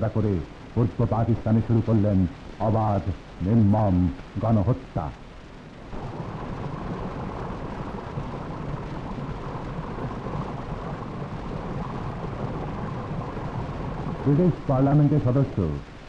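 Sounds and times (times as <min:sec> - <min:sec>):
rushing rumbling noise: 0:00.0 - 0:16.0.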